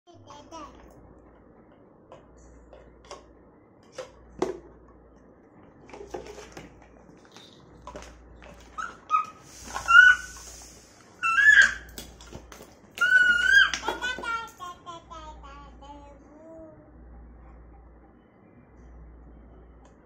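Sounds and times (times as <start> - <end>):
toddler squealing: 8.8 - 10.4, 11.2 - 11.9, 13.0 - 13.8
plastic toys knocking and clicking: 11.6 - 14.6.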